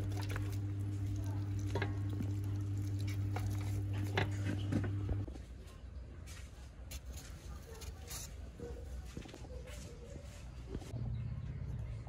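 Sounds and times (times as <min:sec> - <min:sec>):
low electrical hum: 0:00.0 - 0:05.7.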